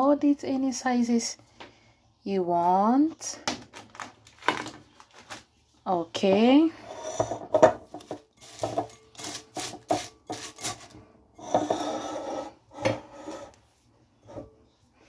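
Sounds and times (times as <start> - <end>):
spatula scraping a glass bowl: 6.7 - 13.6.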